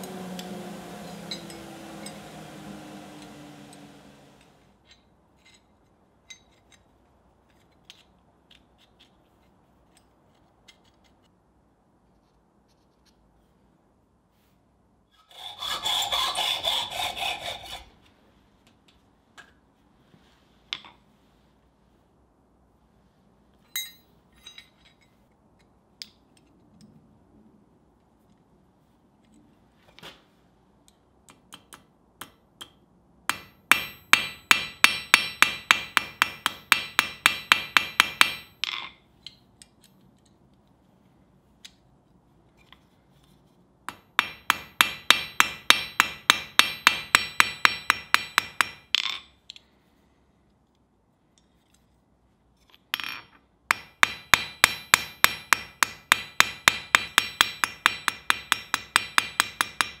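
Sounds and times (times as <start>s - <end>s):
small hammer tapping on steel: 31.3s - 39.8s, 43.9s - 49.6s, 53.0s - 60.0s.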